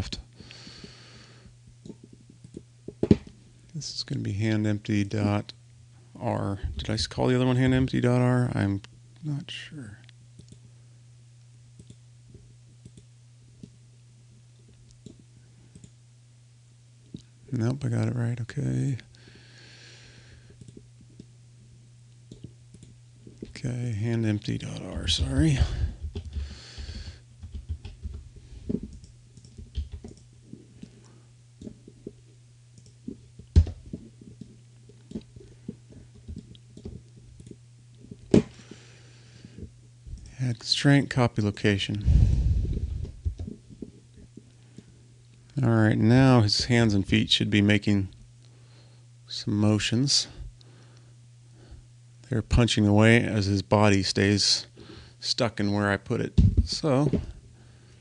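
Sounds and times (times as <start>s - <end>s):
low steady hum: 0.0s - 58.0s
keyboard typing: 27.4s - 28.2s, 28.9s - 30.2s.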